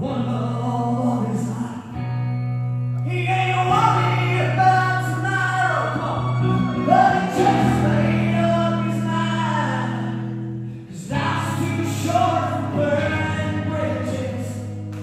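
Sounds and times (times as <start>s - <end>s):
person singing: 3.0s - 15.0s
live band playing: 4.7s - 15.0s.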